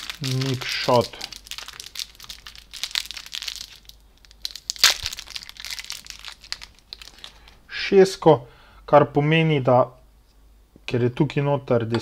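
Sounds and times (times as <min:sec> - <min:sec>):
plastic wrapping crinkling and tearing: 0:00.0 - 0:07.6.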